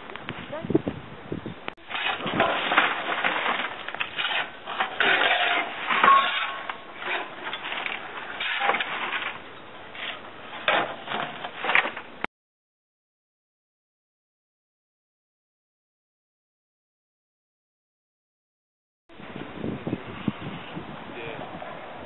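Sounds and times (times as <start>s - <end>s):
wood chips rustling: 1.8s - 12.1s
shovels scraping mulch: 1.8s - 12.2s.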